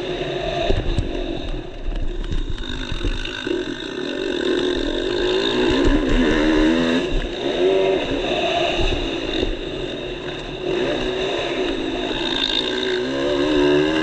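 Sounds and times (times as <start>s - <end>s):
wind rumble on microphone: 0.0s - 4.0s, 4.7s - 10.8s
motocross bike engine revving: 0.0s - 14.0s.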